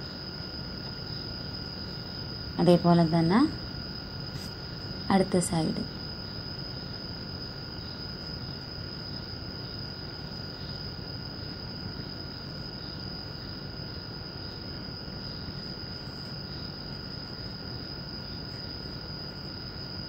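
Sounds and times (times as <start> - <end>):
insect chirring: 0.0 - 20.0
low background hiss: 0.0 - 20.0.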